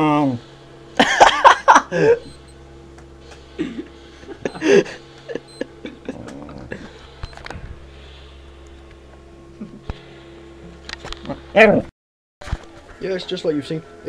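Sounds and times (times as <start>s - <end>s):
watch beeping: 2.2s - 2.6s, 4.3s - 5.9s.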